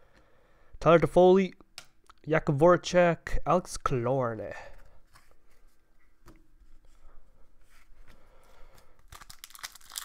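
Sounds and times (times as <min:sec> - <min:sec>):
cards rustling: 0:08.7 - 0:10.0.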